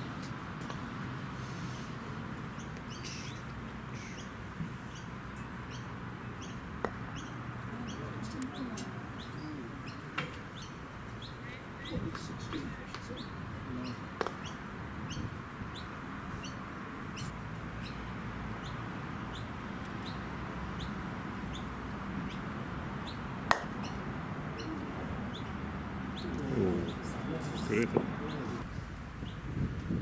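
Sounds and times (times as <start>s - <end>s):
outdoor background noise: 0.0s - 30.0s
bird chirping: 2.5s - 29.4s
croquet mallet striking ball: 23.5s - 23.8s.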